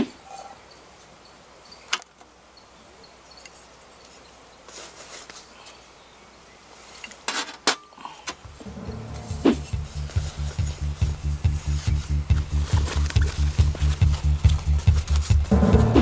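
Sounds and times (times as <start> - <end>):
faint insects: 0.0 - 8.5.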